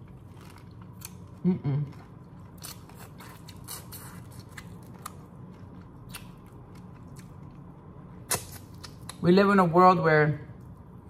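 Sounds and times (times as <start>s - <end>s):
chewing: 0.0s - 7.7s.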